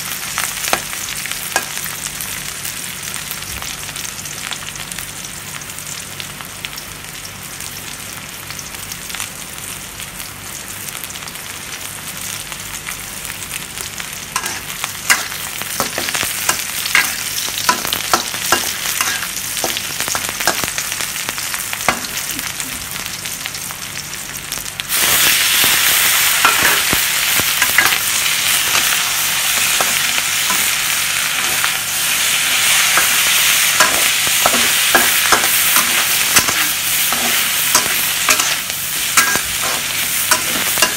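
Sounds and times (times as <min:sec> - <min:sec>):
food sizzling in oil: 0:00.0 - 0:40.9
spatula scraping pan: 0:14.4 - 0:19.8, 0:32.7 - 0:40.9.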